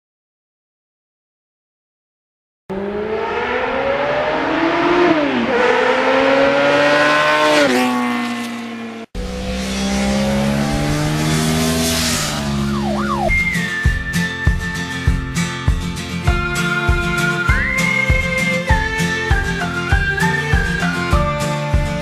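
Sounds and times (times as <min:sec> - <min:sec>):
motorcycle engine accelerating: 0:02.7 - 0:16.0.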